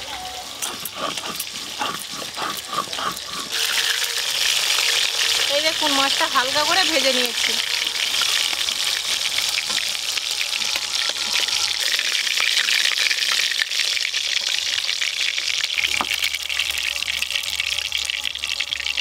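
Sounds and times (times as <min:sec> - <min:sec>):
fish sizzling in hot oil: 0:00.0 - 0:19.0
metal spatula scraping pan: 0:00.1 - 0:12.2.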